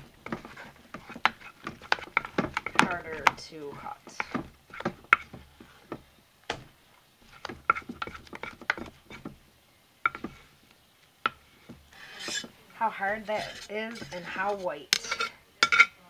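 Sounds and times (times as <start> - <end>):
utensil knocking on stoneware pot: 1.0 - 5.4.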